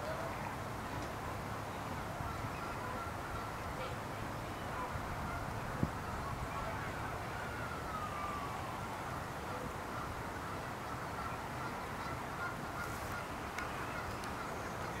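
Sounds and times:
waterfowl calling: 0:02.2 - 0:07.3, 0:09.5 - 0:15.0.

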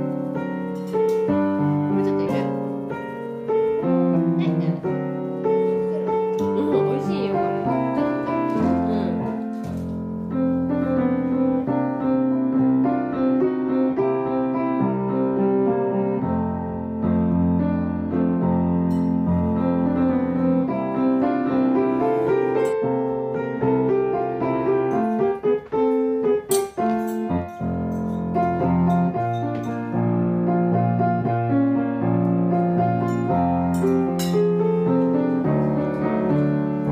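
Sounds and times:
gentle piano music: 0:00.0 - 0:36.9.

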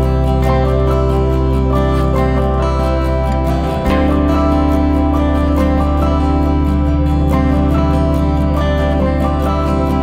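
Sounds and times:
gentle plucked background music: 0:00.0 - 0:10.0.

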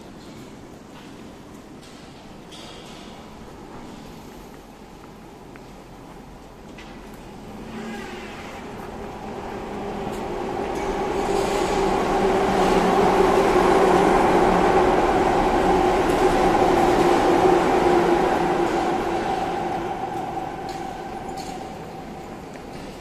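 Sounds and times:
electric train passing overhead: 0:06.2 - 0:23.0.

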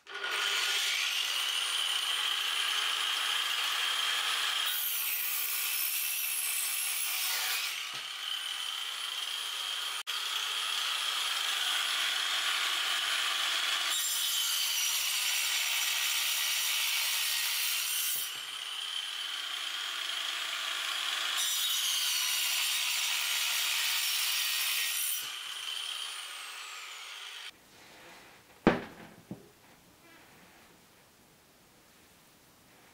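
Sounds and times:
angle grinder cutting wood: 0:00.0 - 0:27.6
sharp knock: 0:28.7 - 0:29.5.

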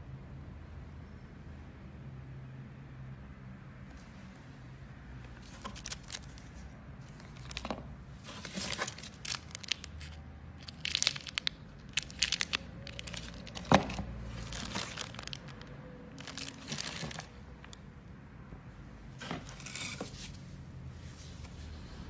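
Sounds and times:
plastic packaging crinkling: 0:05.4 - 0:17.8.

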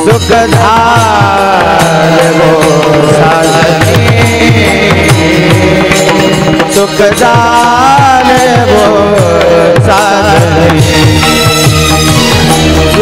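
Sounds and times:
solo voice singing: 0:00.0 - 0:11.2.

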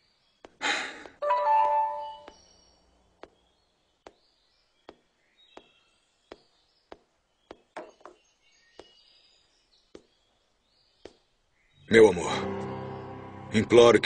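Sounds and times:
faint high chirps: 0:01.2 - 0:03.9.

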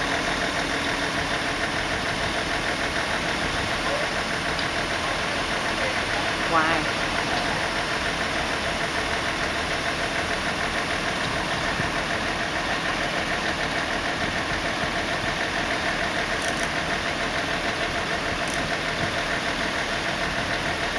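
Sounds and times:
machinery engine idling: 0:00.0 - 0:20.9.

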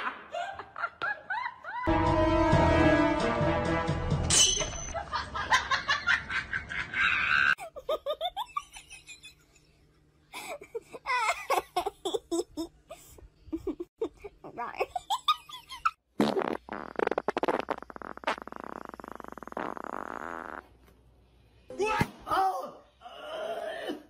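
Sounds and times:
human laughter: 0:00.0 - 0:01.9, 0:05.0 - 0:09.6
noise: 0:16.2 - 0:22.2.

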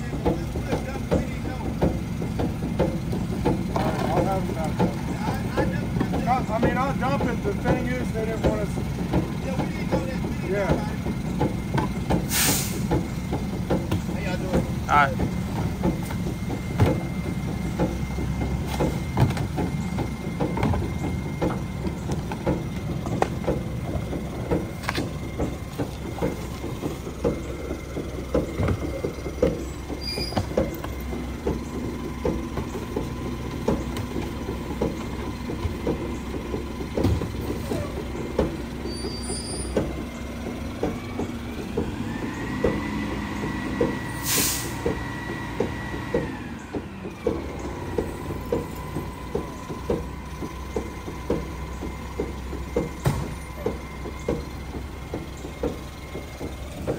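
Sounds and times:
carts banging into hopper: 0:00.0 - 0:56.9
garbage truck idling: 0:00.0 - 0:56.9
air brake hiss: 0:12.3 - 0:12.9, 0:44.1 - 0:44.9.

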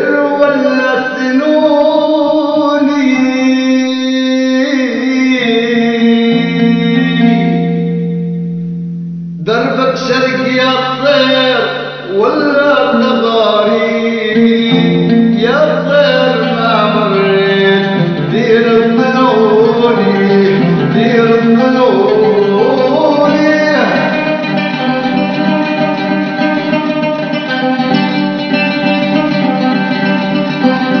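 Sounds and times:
man singing: 0:00.0 - 0:08.2, 0:09.4 - 0:31.0
oud plucked melody: 0:00.0 - 0:31.0.

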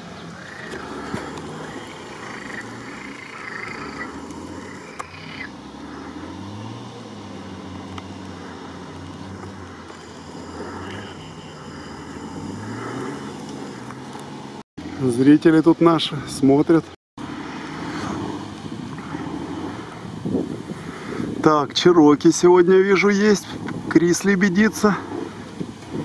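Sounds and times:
off-road vehicle engine revving: 0:00.0 - 0:15.1, 0:17.2 - 0:21.5.

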